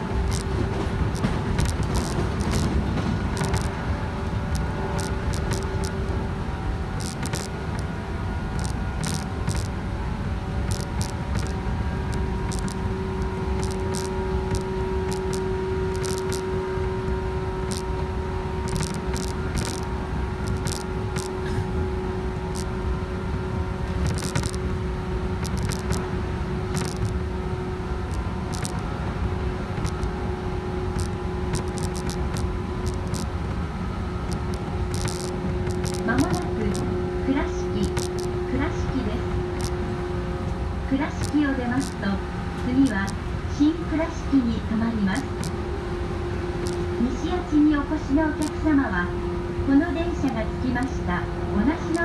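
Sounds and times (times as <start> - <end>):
electric train humming: 0.0 - 52.0
train wheels rumbling on rail: 0.0 - 52.0
light ticks and rattles: 0.2 - 3.8, 4.5 - 6.1, 10.6 - 16.5, 18.6 - 21.3, 24.0 - 24.6, 25.4 - 26.1, 26.7 - 27.2, 28.1 - 28.9, 29.7 - 30.1, 30.9 - 33.6, 34.2 - 36.9.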